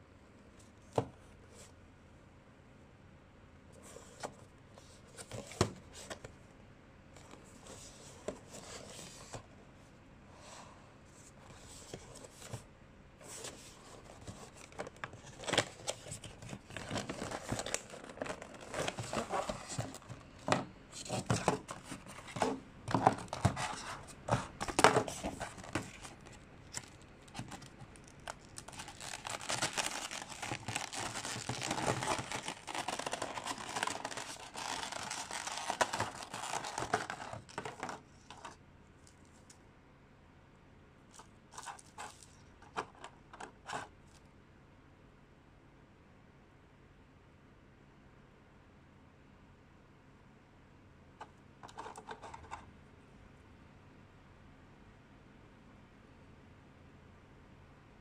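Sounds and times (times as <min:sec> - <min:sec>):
plastic bag crinkling: 0:14.5 - 0:20.4, 0:24.6 - 0:38.5.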